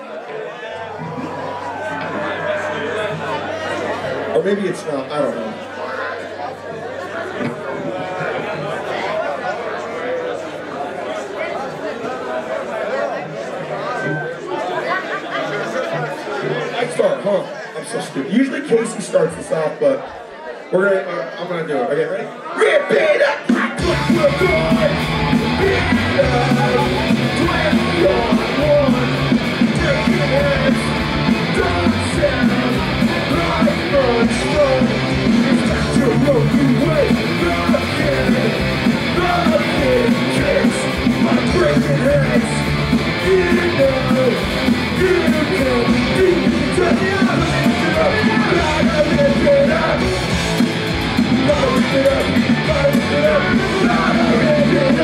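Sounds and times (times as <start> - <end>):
singer yelling vocals: 22.2 - 55.0
punk rock band playing live: 23.5 - 55.0.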